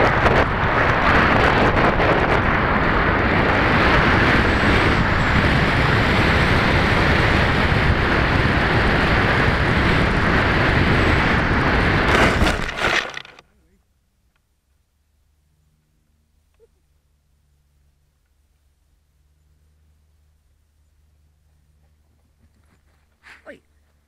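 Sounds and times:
wind buffeting microphone: 0.0 - 13.2.

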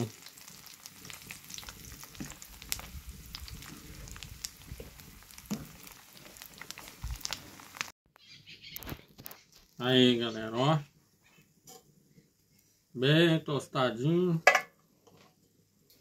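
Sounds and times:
fish frying in hot oil: 0.0 - 8.0.

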